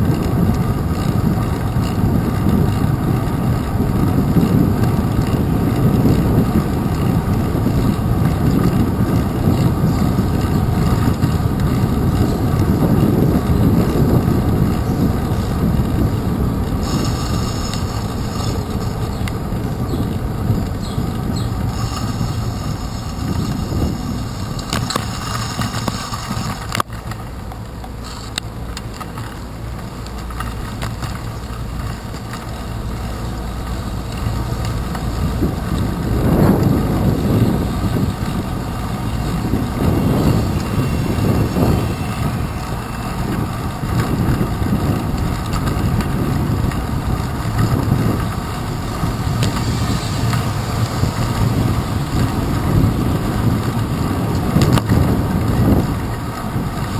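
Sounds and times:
wind buffeting microphone: 0.0 - 56.9
tyre hiss on wet path: 16.8 - 19.0, 21.4 - 26.7, 28.0 - 28.4, 48.6 - 52.9.

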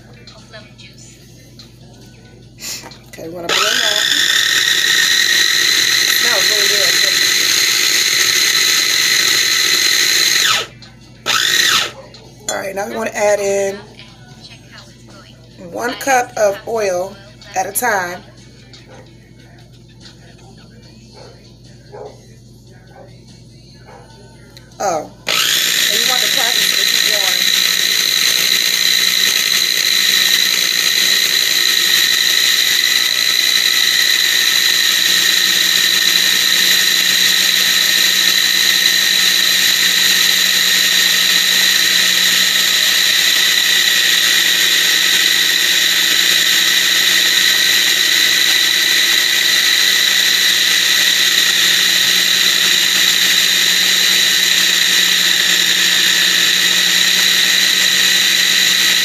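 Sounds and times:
food processor motor whine: 2.6 - 13.8, 24.8 - 59.0.

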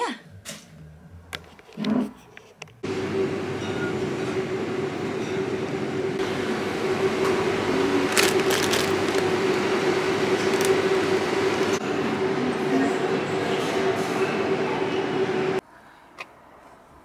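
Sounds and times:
constant hum: 0.0 - 13.3
shopping trolley rolling: 7.8 - 11.8.

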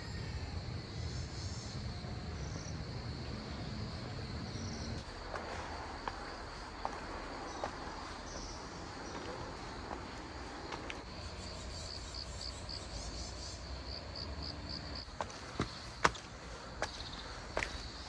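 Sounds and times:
insects chirring: 0.0 - 18.0
footsteps on stone paving: 5.0 - 11.1, 15.0 - 18.0.

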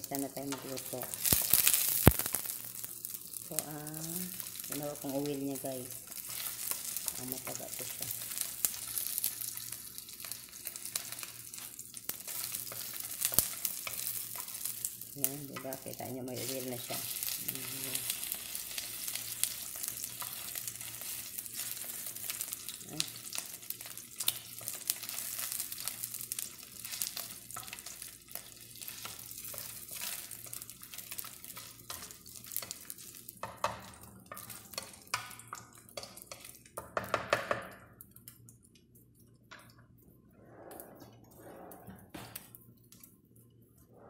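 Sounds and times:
fat sizzling in oil: 0.0 - 36.8
spatula clicking on pan: 31.5 - 38.4.

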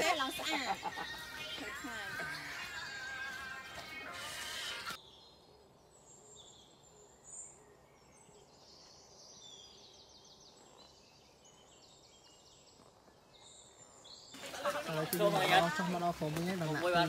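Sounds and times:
music: 0.0 - 5.0
birds chirping and trilling: 0.0 - 17.0
person speaking: 14.5 - 17.0.

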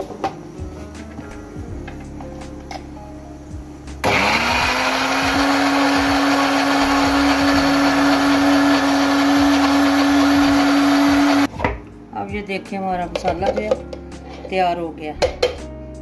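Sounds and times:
mixer grinder motor whine: 4.0 - 11.5.

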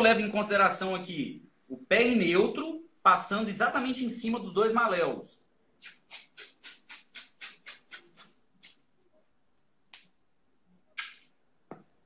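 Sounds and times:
athletic tape rasping: 5.8 - 8.8.

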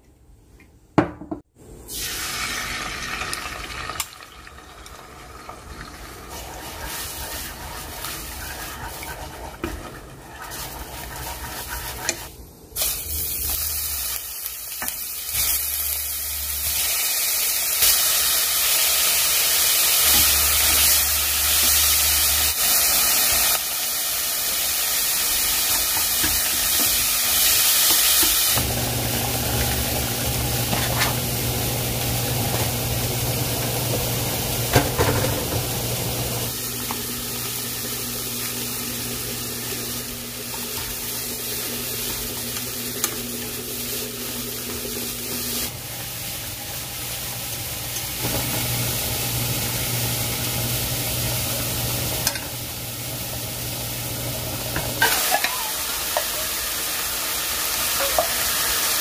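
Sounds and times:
food sizzling in a frying pan: 1.9 - 59.0.

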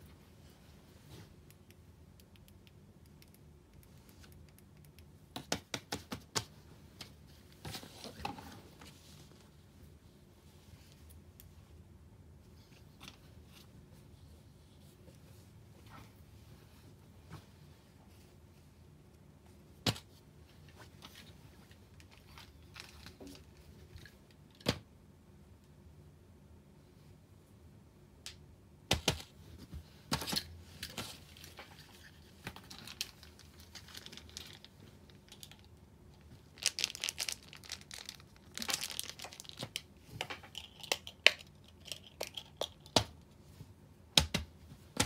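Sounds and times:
hands handling objects and paper: 19.9 - 24.3, 28.9 - 43.8.

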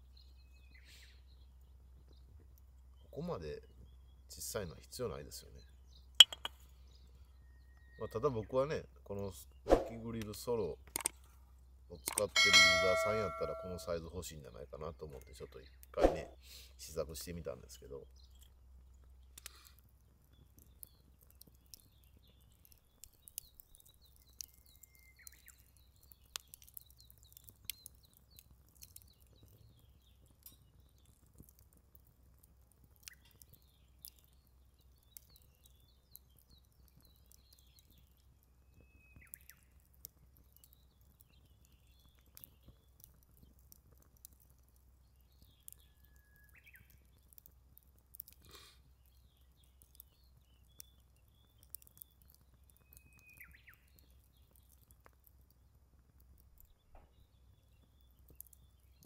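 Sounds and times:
firewood crackling and snapping: 9.0 - 14.3, 17.1 - 59.0.

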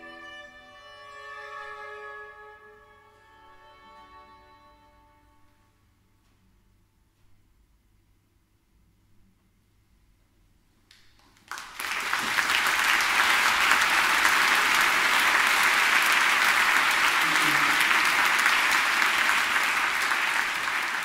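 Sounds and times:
audience applauding: 11.2 - 21.0.

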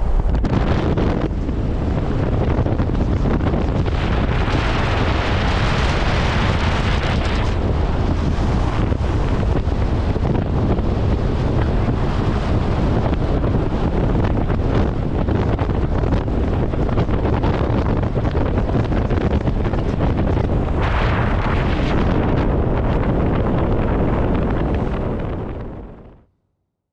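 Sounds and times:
wind buffeting microphone: 0.0 - 26.2
deep rumble: 0.0 - 26.3.

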